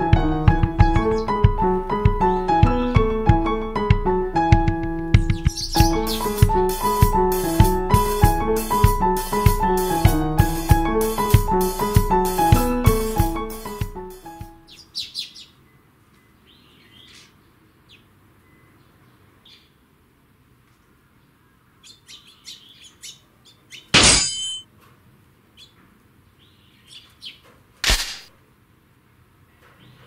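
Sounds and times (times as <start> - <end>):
piano music: 0.0 - 14.7
sparrows chirping: 0.9 - 1.4, 5.2 - 6.4, 14.6 - 19.8, 21.4 - 23.9, 26.4 - 27.5.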